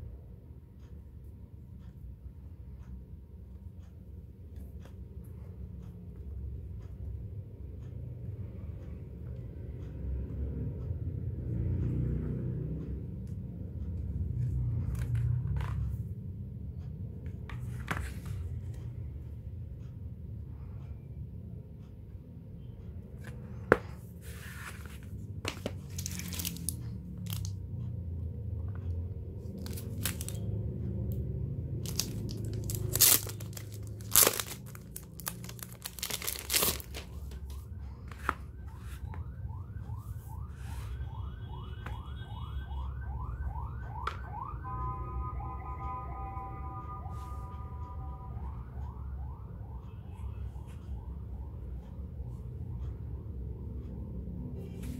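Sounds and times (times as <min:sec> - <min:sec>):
stiff card pages rustling: 0:23.2 - 0:27.5, 0:29.5 - 0:30.5, 0:31.8 - 0:39.1.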